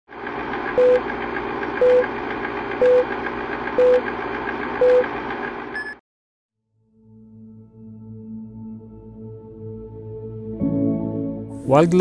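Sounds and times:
film projector clattering: 0.1 - 5.7.

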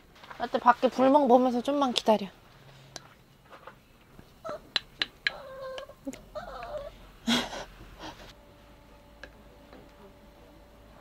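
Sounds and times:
small dog whining: 4.4 - 7.0.

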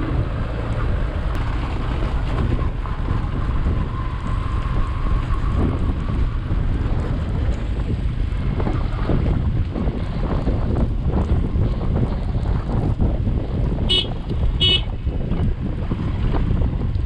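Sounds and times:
motorcycle rumble: 0.0 - 17.0
wind buffeting microphone: 0.0 - 17.0
horn toots: 13.9 - 14.9.

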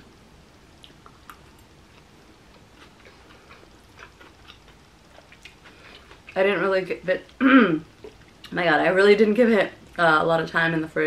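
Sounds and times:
soft chewing mouth clicks: 0.8 - 6.4.

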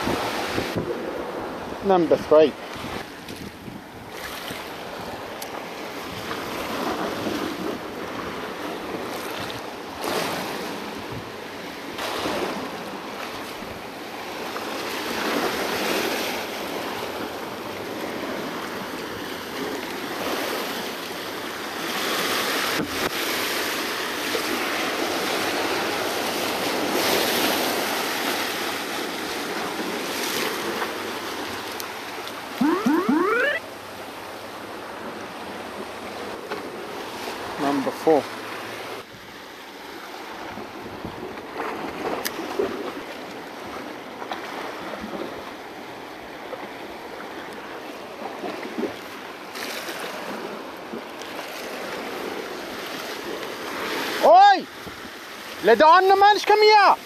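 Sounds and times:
waves washing against rocks: 14.2 - 32.5
rising whistle-like sound: 32.6 - 33.7.

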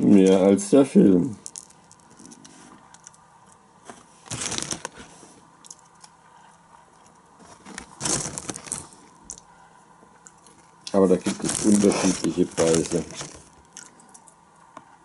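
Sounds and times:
small rustles and clicks: 1.4 - 6.2, 6.9 - 9.5, 10.2 - 14.4
foil snack bag crinkling: 4.3 - 5.1, 7.5 - 9.4, 10.4 - 13.9.

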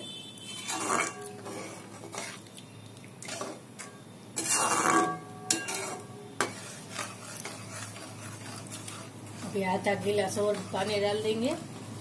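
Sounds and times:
metal spoon stirring in pan: 0.4 - 2.6, 3.2 - 11.8.

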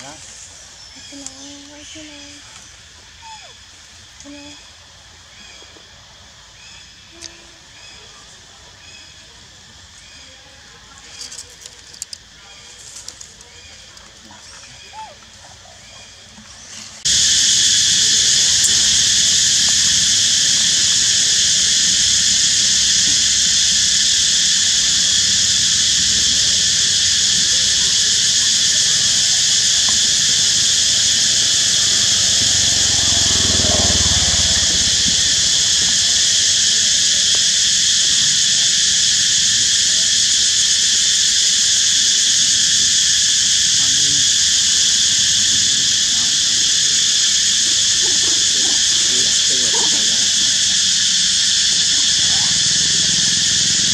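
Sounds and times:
cicadas buzzing: 0.0 - 53.9
low rumble: 29.0 - 37.1.

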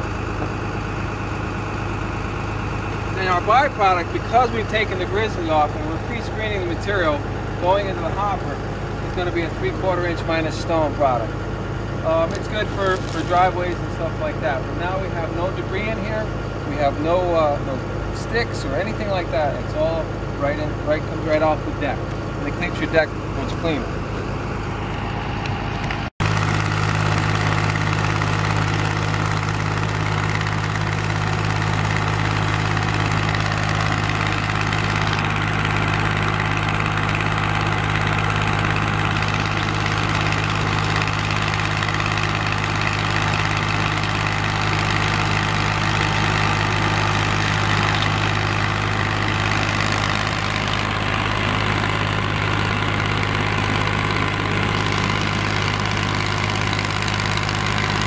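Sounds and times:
deep machine hum: 0.0 - 58.0.

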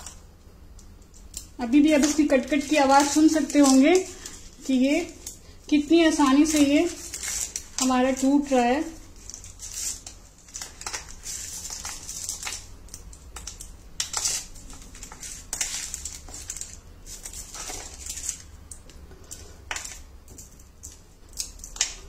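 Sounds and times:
brittle candy snapping: 0.0 - 5.6, 6.2 - 22.0.

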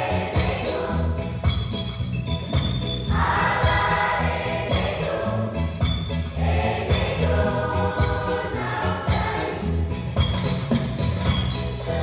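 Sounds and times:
children's choir singing: 0.0 - 1.4, 3.1 - 5.7, 6.4 - 9.8.

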